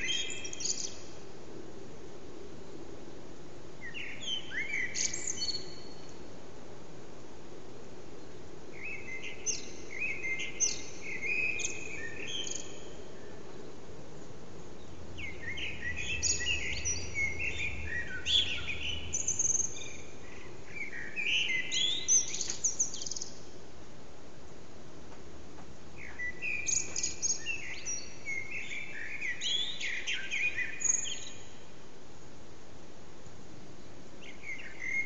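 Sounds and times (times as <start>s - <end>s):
blackbird singing: 0.0s - 1.1s, 3.8s - 6.1s, 8.8s - 13.4s, 14.8s - 23.5s, 26.0s - 31.6s, 34.2s - 35.0s
low background hum: 0.0s - 30.1s.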